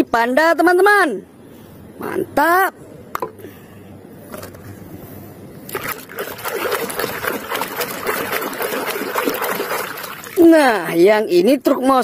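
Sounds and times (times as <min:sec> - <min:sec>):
sloshing soapy water: 0:05.7 - 0:10.8.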